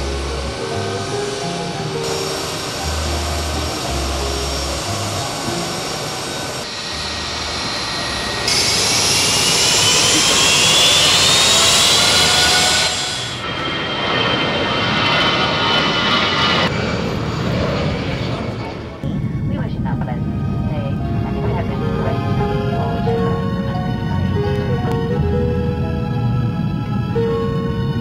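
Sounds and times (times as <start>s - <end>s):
turbofan whine rising in pitch: 0.0s - 18.3s
jet engine noise: 0.0s - 28.0s.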